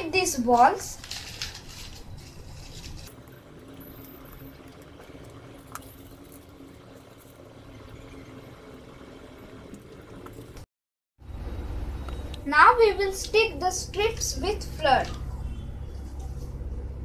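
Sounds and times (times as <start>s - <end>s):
crumpled newspaper rustling: 0.4s - 3.1s
steady low hum: 1.5s - 17.0s.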